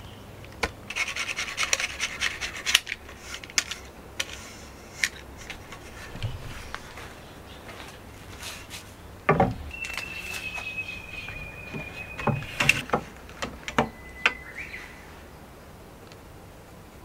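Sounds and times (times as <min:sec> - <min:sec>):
board thud on wooden deck: 0:09.3 - 0:09.7.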